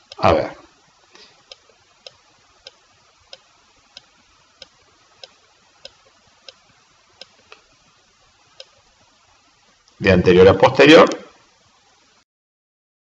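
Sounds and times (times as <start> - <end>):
faint room hiss: 0.0 - 12.2
light ticking: 1.4 - 7.7, 8.5 - 8.9.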